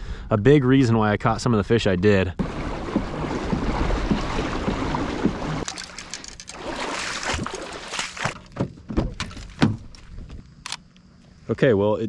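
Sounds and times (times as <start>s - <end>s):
water splashing along kayak hull: 2.4s - 10.1s.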